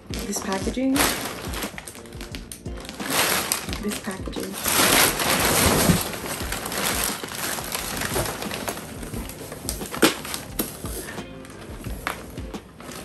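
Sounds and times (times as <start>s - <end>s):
packing paper rustling and crinkling: 0.0s - 13.0s.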